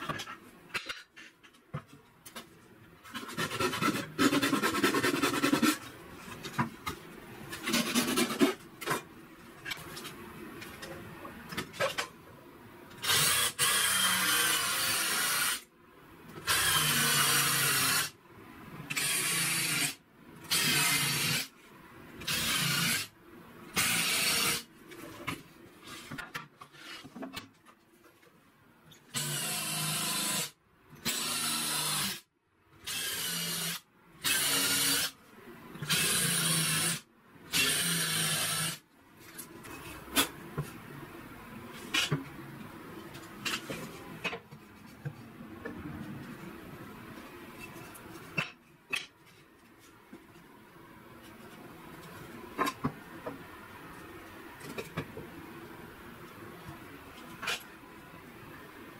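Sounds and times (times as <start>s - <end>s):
hand file scraping wood: 3.1s - 5.9s, 7.6s - 8.6s.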